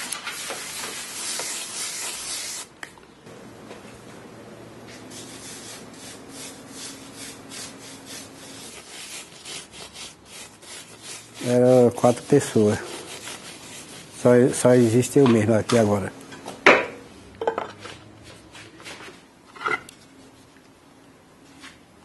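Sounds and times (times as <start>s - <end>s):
hand scrubbing metal mold: 4.9s - 16.0s.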